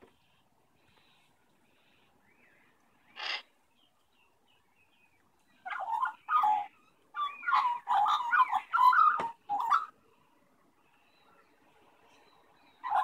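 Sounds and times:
magpie chirps: 3.1 - 3.5, 5.6 - 9.9
magpie harsh squawks: 3.2 - 3.4.

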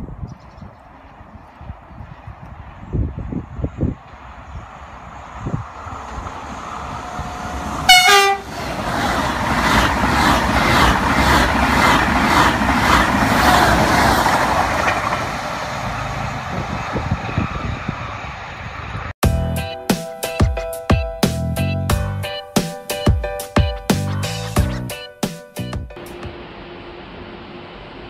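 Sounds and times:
train rushing past: 0.9 - 19.2, 25.9 - 28.0
train horn blast: 7.1 - 8.6.

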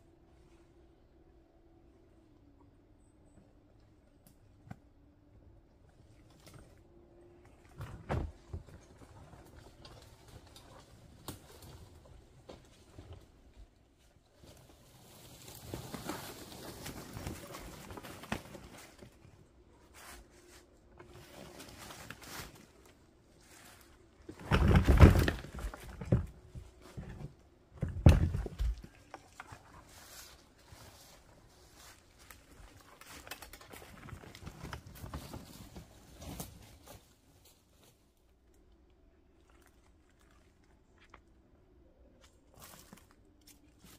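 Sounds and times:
wheelbarrow rolling through leaves: 14.4 - 19.2, 19.8 - 27.1, 29.3 - 37.8
firewood tumbling and clattering: 23.5 - 29.6.

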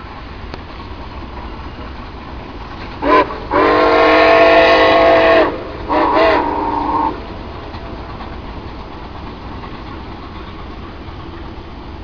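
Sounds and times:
train rumble: 0.0 - 12.0
steam locomotive chime whistle: 3.0 - 7.2.

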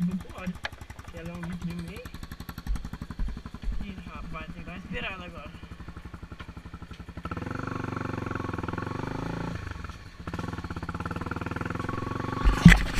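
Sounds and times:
motorcycle engine revving: 0.0 - 12.9.

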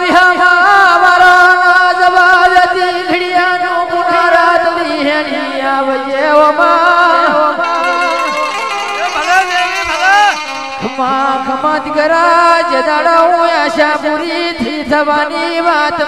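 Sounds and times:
drum strikes: 7.6 - 12.1.

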